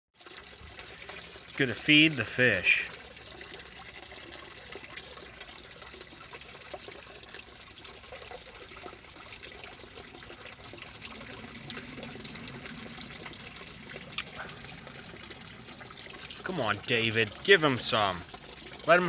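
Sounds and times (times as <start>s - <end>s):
water trickling into a pond: 0.1s - 19.0s
faint low hum: 10.6s - 17.4s.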